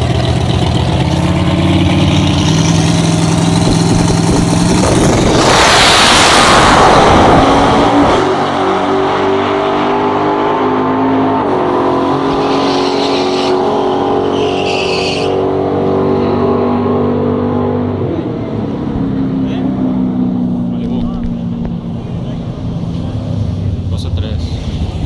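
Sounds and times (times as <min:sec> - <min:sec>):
racing car engines at full throttle: 0:00.0 - 0:25.0.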